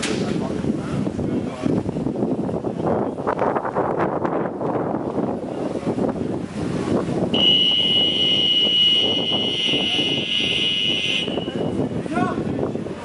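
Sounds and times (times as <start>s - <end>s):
wind noise on microphone: 0.0s - 13.0s
referee's whistle blast: 7.4s - 11.7s.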